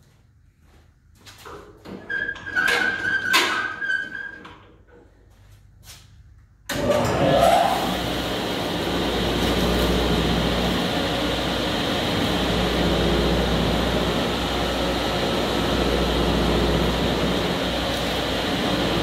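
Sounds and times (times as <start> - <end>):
dust collector humming: 6.7 - 19.0
table saw running: 6.7 - 19.0.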